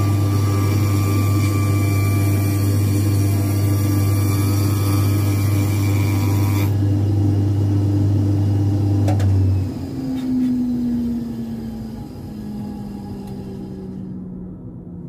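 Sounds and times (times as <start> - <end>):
machine motor humming: 6.7 - 14.8
machine whine spinning down: 8.4 - 15.0.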